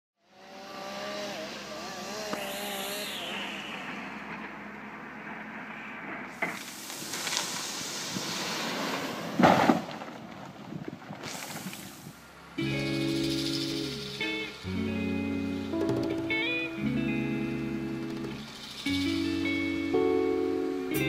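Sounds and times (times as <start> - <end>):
engine running with wavering pitch: 0.2 - 6.3, 12.2 - 21.0
loud burst of noise: 1.0 - 8.8
steady rushing noise: 1.4 - 9.4, 15.8 - 21.0.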